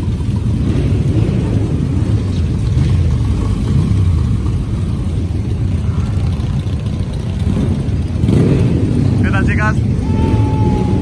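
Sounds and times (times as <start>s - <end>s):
many motorcycle engines running: 0.0s - 11.0s.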